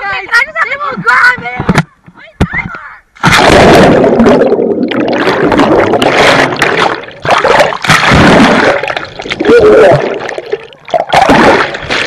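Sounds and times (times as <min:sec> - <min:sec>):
splash into pool: 0:03.2 - 0:10.4, 0:11.0 - 0:12.0
underwater churning and bubbling: 0:03.2 - 0:12.0.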